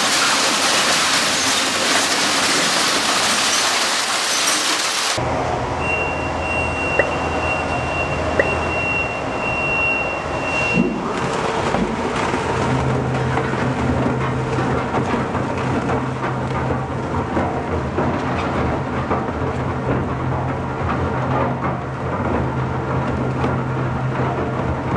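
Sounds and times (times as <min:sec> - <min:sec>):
industrial shredder humming: 0:10.1 - 0:18.2.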